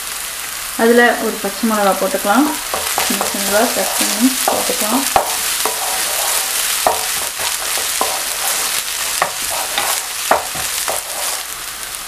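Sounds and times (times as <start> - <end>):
onions sizzling in oil: 0.0 - 12.0
wooden spatula scraping pan: 2.6 - 11.5.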